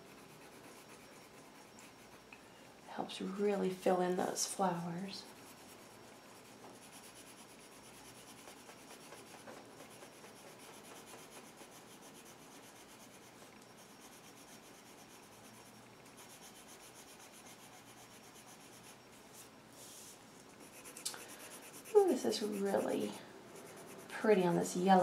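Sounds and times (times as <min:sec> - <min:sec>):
pencil scratching on paper: 0:00.0 - 0:02.3, 0:05.2 - 0:19.0, 0:20.6 - 0:24.5.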